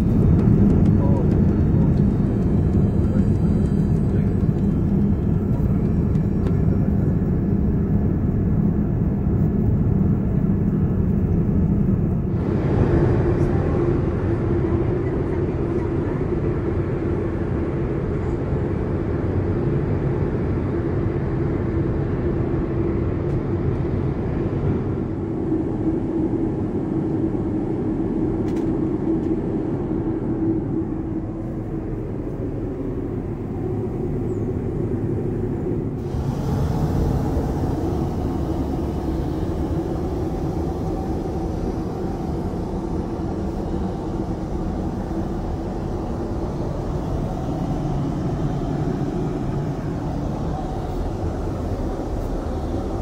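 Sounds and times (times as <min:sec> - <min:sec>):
airliner noise: 0:00.0 - 0:53.0
steady low tone: 0:00.0 - 0:53.0.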